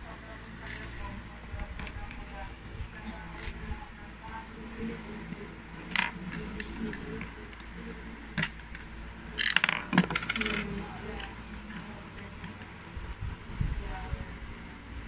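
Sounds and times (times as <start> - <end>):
plastic bricks clicking: 8.4 - 11.3.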